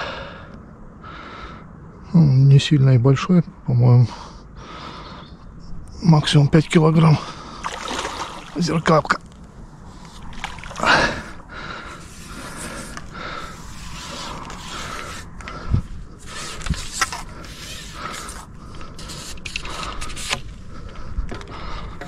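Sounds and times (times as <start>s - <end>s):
fishing reel creaking and whirring: 16.2s - 20.5s.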